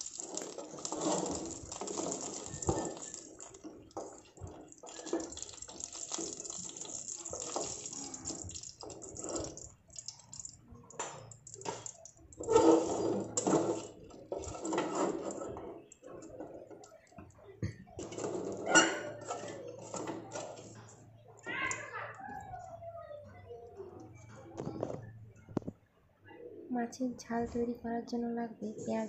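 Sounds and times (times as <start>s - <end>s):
fish sizzling in hot oil: 0.0s - 15.3s
wooden spatula scraping pan: 0.3s - 5.3s, 12.4s - 16.6s.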